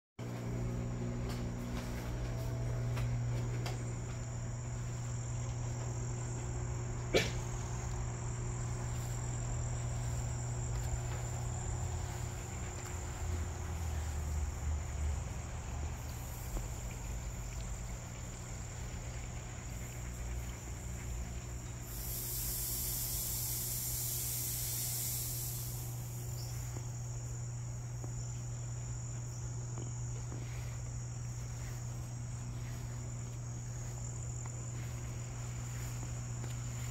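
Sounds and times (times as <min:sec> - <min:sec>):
crickets trilling: 0:00.2 - 0:36.9
low hum: 0:00.2 - 0:36.9
hissing buzz: 0:19.7 - 0:27.4.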